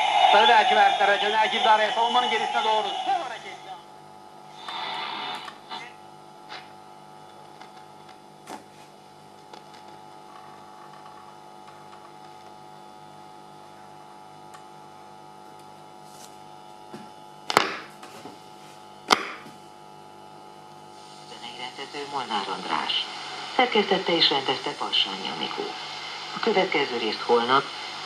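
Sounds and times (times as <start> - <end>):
radio static crackles: 0.0 - 3.9, 4.6 - 8.2, 20.7 - 28.0
radio hum: 0.0 - 7.0, 20.7 - 28.0.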